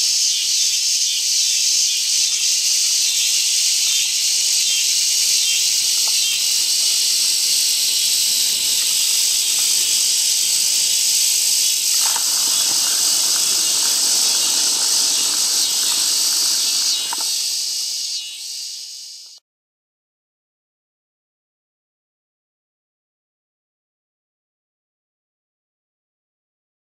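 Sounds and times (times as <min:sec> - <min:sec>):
high-pitched insect chorus: 0:00.0 - 0:19.4.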